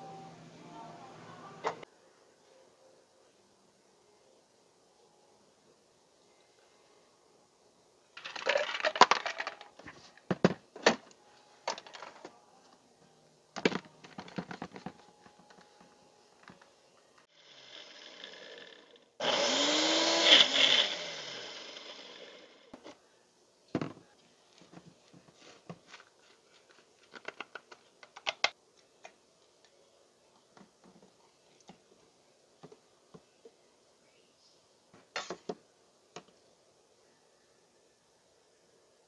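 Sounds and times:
blender running: 17.3 - 22.7.

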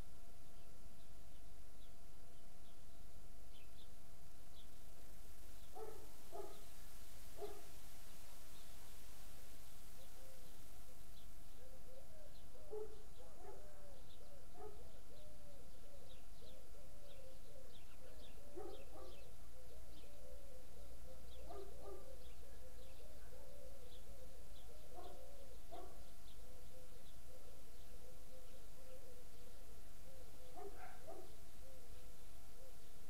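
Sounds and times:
birds calling: 5.6 - 6.8, 7.4 - 7.7, 11.2 - 33.0.

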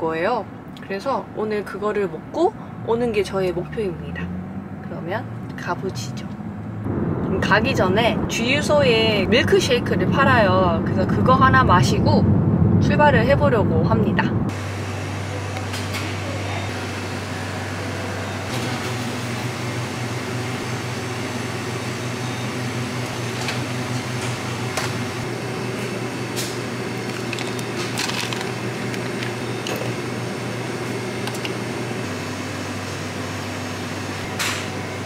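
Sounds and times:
blender motor humming: 19.0 - 33.6.

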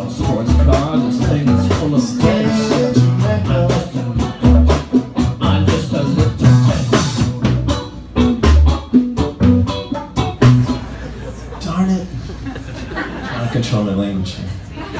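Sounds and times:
live rock band playing: 0.0 - 11.6.

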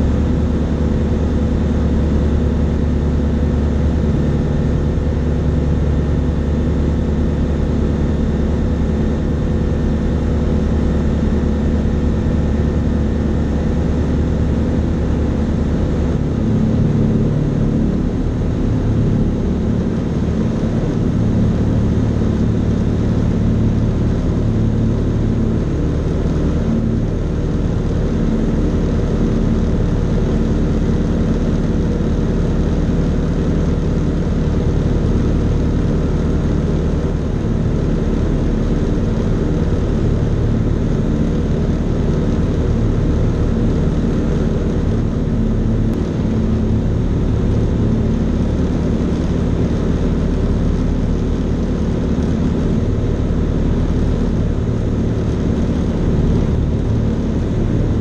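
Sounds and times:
aircraft engine and propeller: 0.0 - 58.0.

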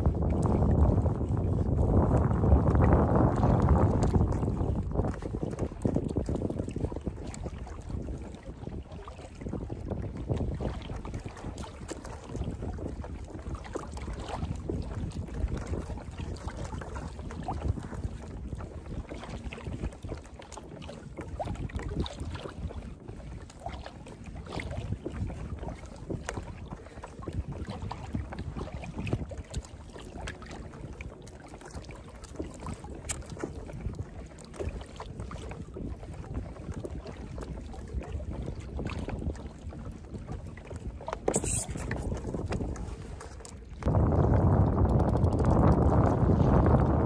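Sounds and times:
water lapping against kayak hull: 0.0 - 47.0
wind rumbling on microphone: 0.0 - 47.0
small splashes and knocks: 23.4 - 43.9.

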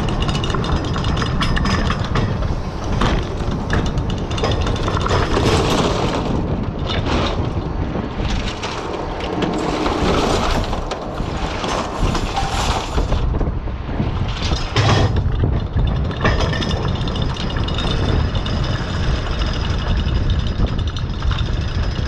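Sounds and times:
oysters and shells clattering: 0.0 - 13.4, 14.2 - 22.0.

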